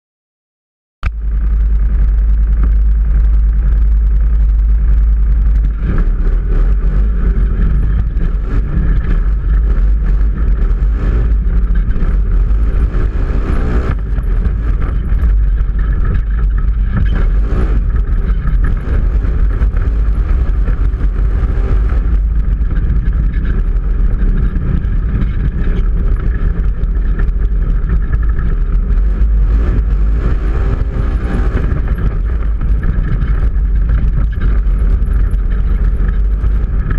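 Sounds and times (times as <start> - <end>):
vehicle engine and tyres: 1.0 - 36.9
wind rumble on microphone: 1.0 - 36.9.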